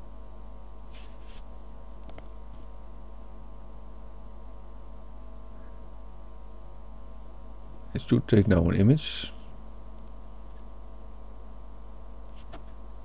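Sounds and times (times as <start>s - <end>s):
steady electrical hum: 0.0s - 13.0s
soft hisses: 0.8s - 2.0s.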